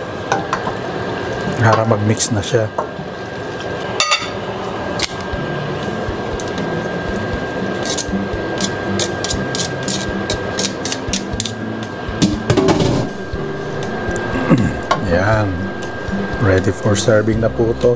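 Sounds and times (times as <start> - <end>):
pan hissing: 4.7 - 17.9.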